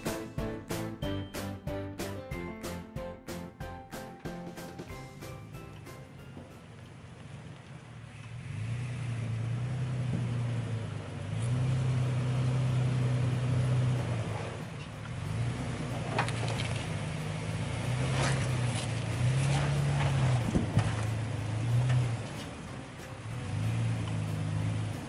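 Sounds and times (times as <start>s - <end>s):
engine revving: 8.1s - 25.0s.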